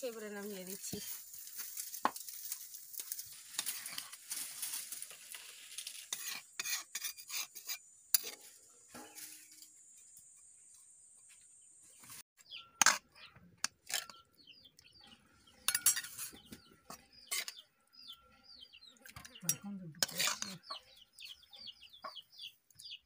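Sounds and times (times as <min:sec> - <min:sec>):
birds chirping: 0:08.6 - 0:23.0
steel spoon clinking on pots: 0:13.6 - 0:14.2, 0:15.6 - 0:16.4, 0:19.2 - 0:20.7.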